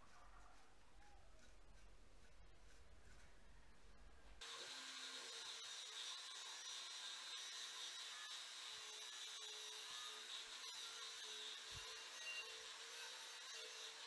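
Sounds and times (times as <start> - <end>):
sanding disc grinding metal rim: 4.4 - 14.0.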